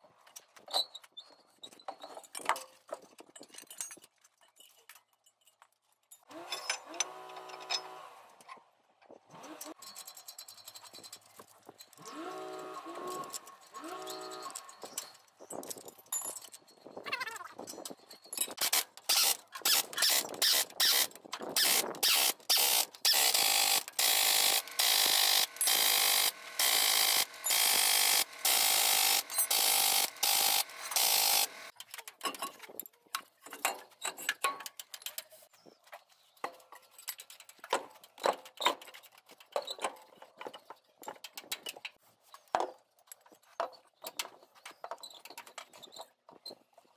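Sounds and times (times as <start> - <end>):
impact wrench bursts: 12.0 - 14.6, 18.6 - 31.7
tools clinking on metal: 13.0 - 17.0.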